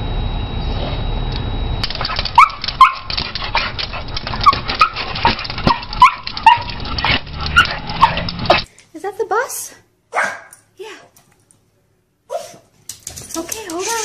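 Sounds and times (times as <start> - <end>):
sharp clicks: 1.8 - 8.7
small dog yelping and whining: 2.0 - 8.6, 12.3 - 12.6.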